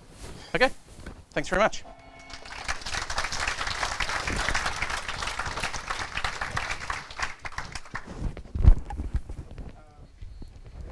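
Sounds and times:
audience applauding: 2.0 - 8.4.

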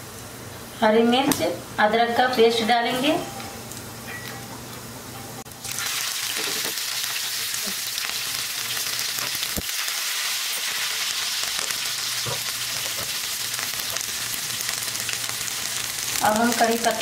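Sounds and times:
paste sizzling in hot oil: 5.6 - 17.0.

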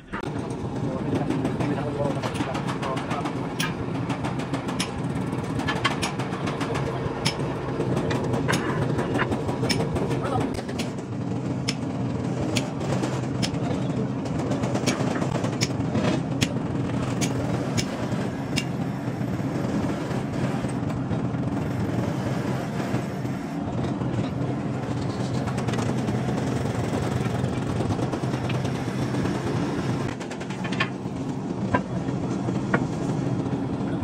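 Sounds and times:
workshop press humming: 0.0 - 33.5
sharp metallic clicks: 2.2 - 8.9, 12.5 - 13.8.

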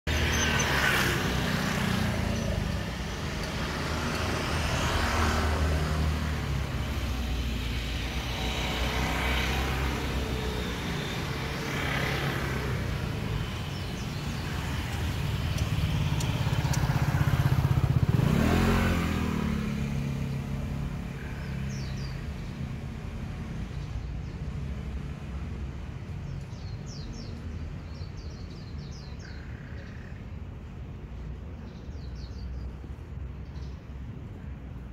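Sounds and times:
vehicle engines passing: 0.1 - 34.9
engine revving up: 15.9 - 20.6.

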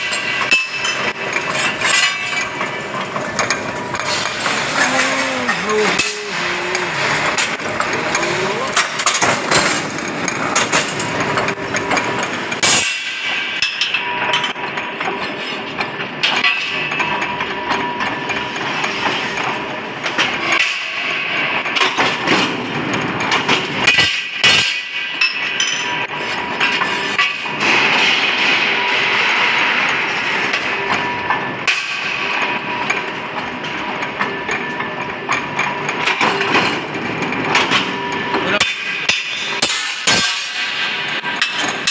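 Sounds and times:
steady machine noise: 0.0 - 15.2, 25.1 - 41.9
press cutting steel bangs: 38.6 - 41.9.

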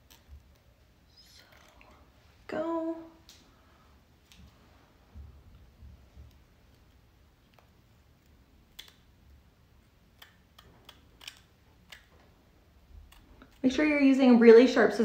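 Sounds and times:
scissors snipping: 8.6 - 9.1, 10.1 - 12.2, 12.9 - 13.6.

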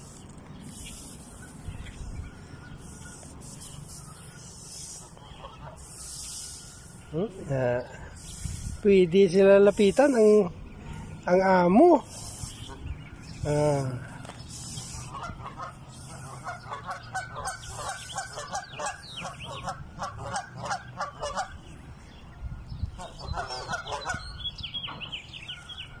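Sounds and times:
goslings peeping: 0.0 - 21.8, 22.8 - 26.0
geese honking: 2.5 - 7.3, 14.6 - 21.6, 23.0 - 25.1.

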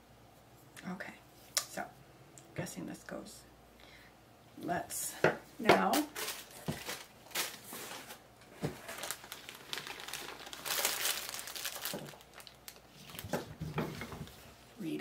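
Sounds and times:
plastic bags crinkling: 5.8 - 14.3.

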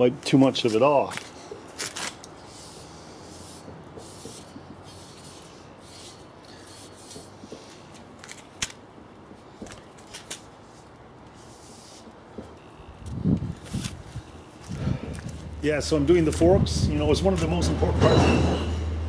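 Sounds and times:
cloth rubbing on paint: 10.6 - 12.2.

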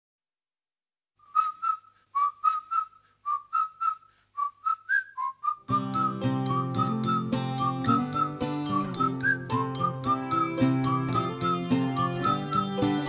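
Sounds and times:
whistled tune: 1.2 - 13.0.

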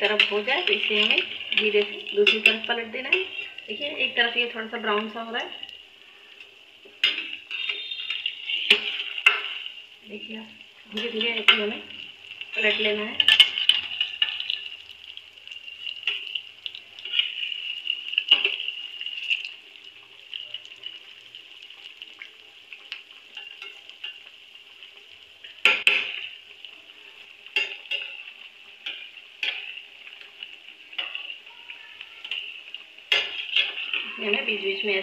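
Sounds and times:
metal spoon scraping pan: 0.0 - 3.7, 7.0 - 9.7, 12.5 - 14.7, 17.0 - 19.5, 32.2 - 34.5
food deep-frying in oil: 0.0 - 35.0.

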